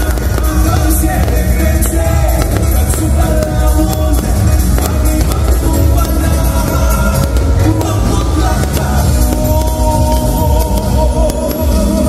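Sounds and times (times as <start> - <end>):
loud music with singing: 0.0 - 12.0
strong steady bass: 0.0 - 12.0.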